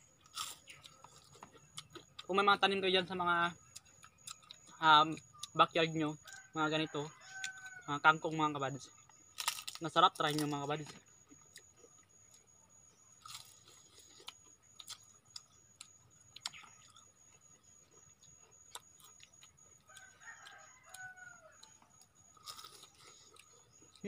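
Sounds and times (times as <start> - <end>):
crunchy chewing: 0.0 - 24.0
distant rooster crowing: 6.1 - 8.3, 19.6 - 23.5.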